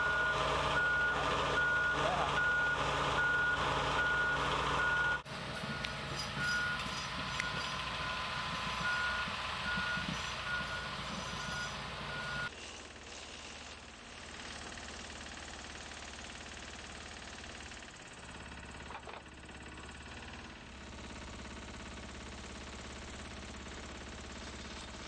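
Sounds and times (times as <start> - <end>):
reversing alarms beeping: 0.0 - 12.5
diesel engine rumble: 0.0 - 25.0.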